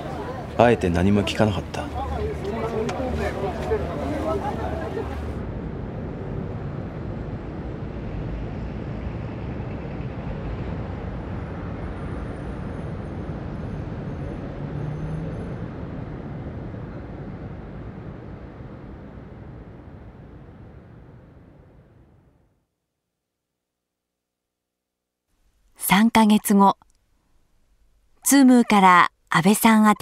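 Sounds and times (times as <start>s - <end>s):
city traffic rumble: 0.0s - 22.4s.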